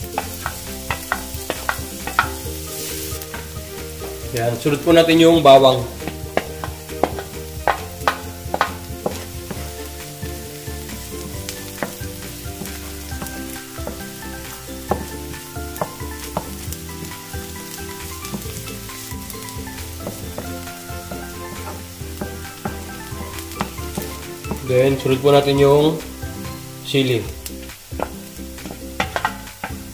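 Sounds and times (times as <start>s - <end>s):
wooden spatula knocking and scraping pan: 0.0s - 26.7s, 27.3s - 29.9s
food sizzling in oil: 0.0s - 29.9s.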